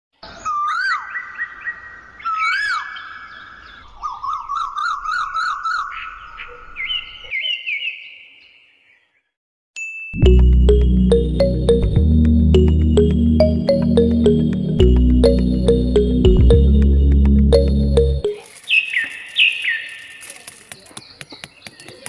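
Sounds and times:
loud music: 10.2 - 18.4.

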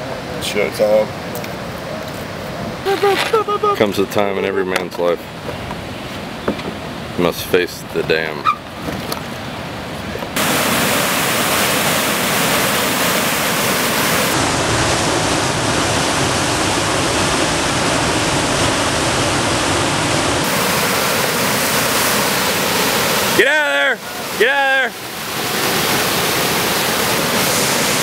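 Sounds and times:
river whitewater rushing: 9.4 - 28.0.

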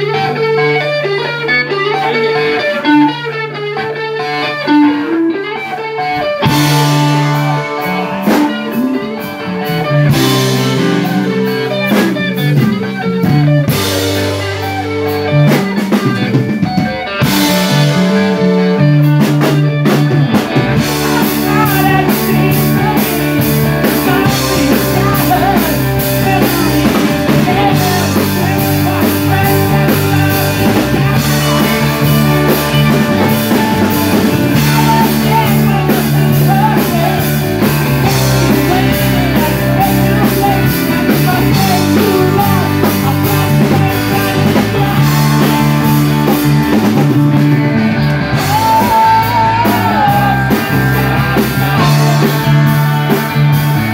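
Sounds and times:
drum kit beat: 0.0 - 53.9
electric guitars: 0.0 - 53.9.

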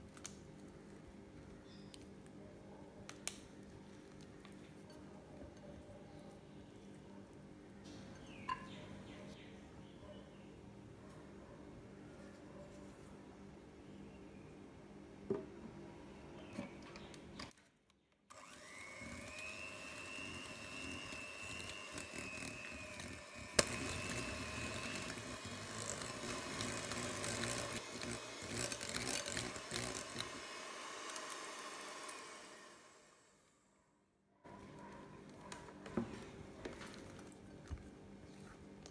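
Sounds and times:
electric hand mixer running: 18.3 - 33.4.

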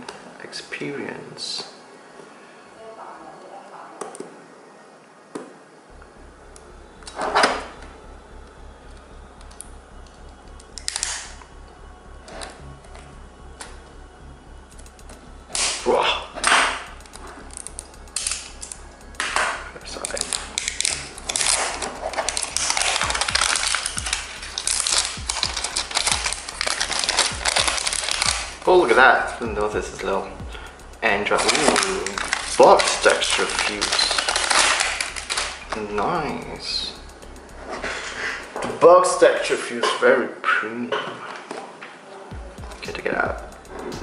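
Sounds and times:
plastic wrap crinkling: 17.5 - 29.3, 30.7 - 38.2.

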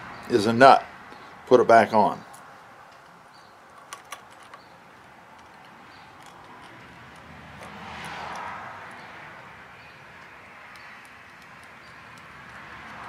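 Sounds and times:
small metallic clicks: 2.3 - 9.2, 9.8 - 13.0.

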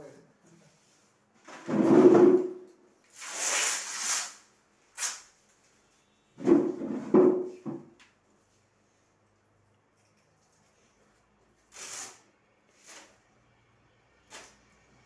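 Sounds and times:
hook-and-loop strips ripping: 3.1 - 5.3, 11.6 - 13.2.

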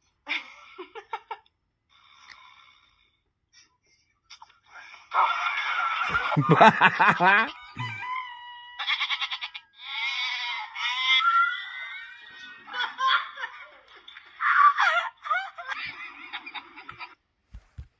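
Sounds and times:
laughter from small speaker: 6.1 - 8.2, 12.3 - 14.0.

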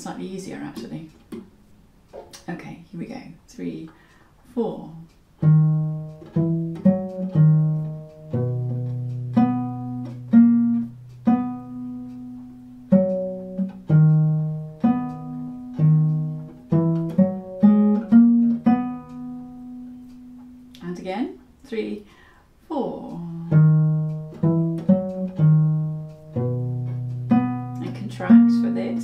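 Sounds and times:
bowed viol notes: 5.0 - 21.3, 23.0 - 29.0.

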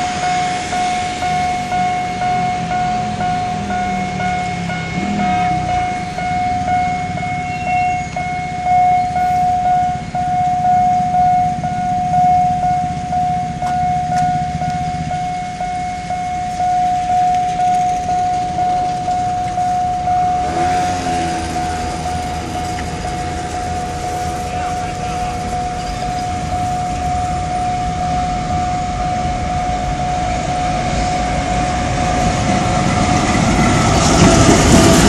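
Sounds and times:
diesel train rumbling: 0.0 - 35.0
level-crossing warning bell: 0.0 - 35.0
wagons rattling: 17.4 - 27.6.

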